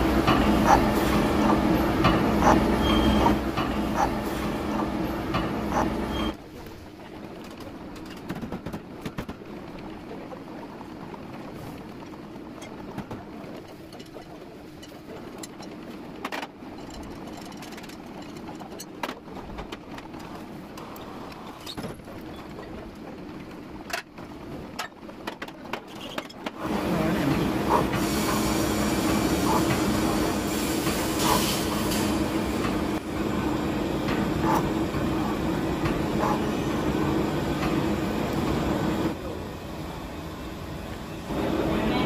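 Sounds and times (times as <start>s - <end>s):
clicks and clatter: 6.6s - 10.1s, 11.2s - 26.6s.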